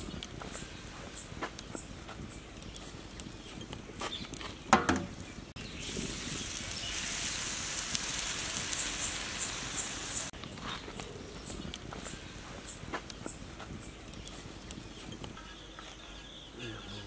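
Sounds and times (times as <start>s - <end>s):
batter sizzling on a griddle: 5.5s - 10.3s.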